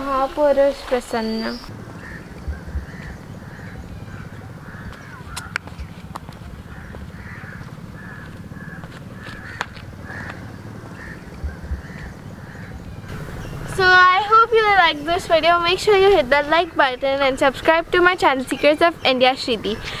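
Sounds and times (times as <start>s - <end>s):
steady low rumble: 0.0s - 19.7s
crows cawing: 1.7s - 13.7s.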